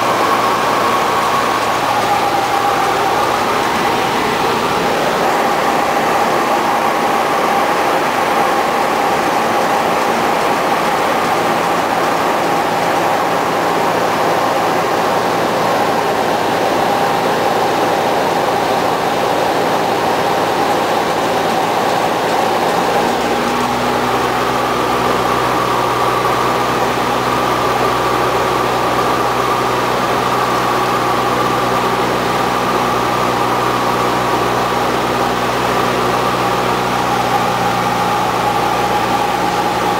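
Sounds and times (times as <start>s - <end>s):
deeper hum: 0.0s - 17.0s
propeller airplane engine drone: 0.0s - 39.9s.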